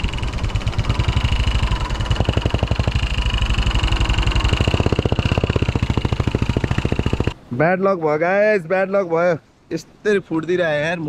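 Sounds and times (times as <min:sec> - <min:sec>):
motorcycle engine running: 0:00.0 - 0:07.4.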